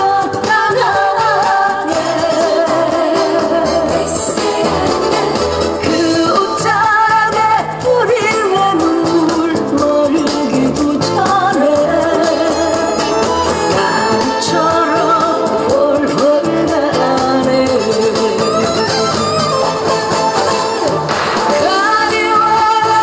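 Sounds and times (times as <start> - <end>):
woman singing into microphone: 0.0 - 19.5, 21.4 - 23.0
instrumental accompaniment: 0.0 - 23.0.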